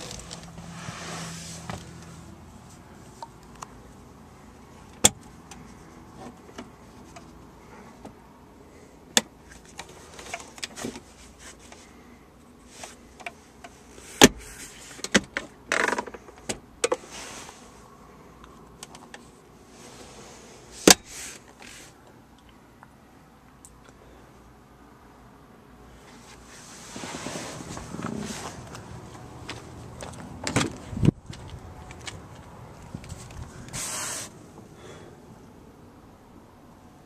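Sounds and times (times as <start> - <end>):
rustling scrape: 0.0 - 2.8, 17.0 - 17.8, 19.7 - 22.0, 26.1 - 28.8, 33.1 - 34.4.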